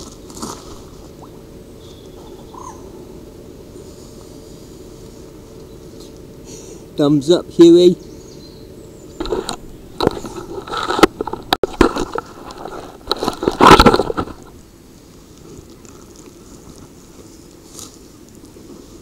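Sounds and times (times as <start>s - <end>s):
camera rubbing against jacket: 9.2s - 14.5s.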